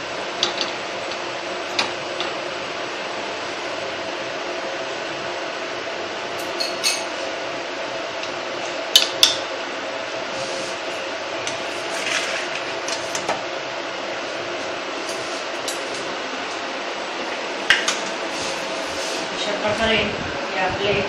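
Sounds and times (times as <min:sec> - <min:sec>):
steady hum: 0:00.0 - 0:21.0
metal spoon clinking glass bowl: 0:06.4 - 0:07.1.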